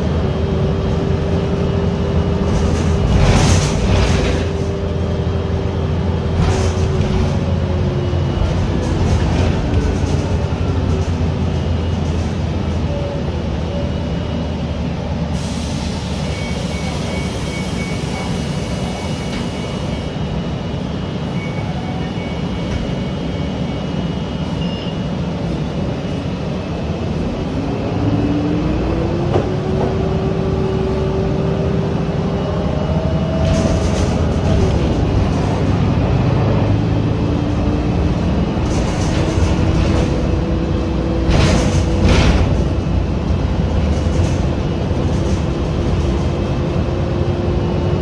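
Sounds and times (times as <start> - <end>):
bus engine rumbling: 0.0 - 48.0
rising whine of accelerating bus: 0.0 - 48.0.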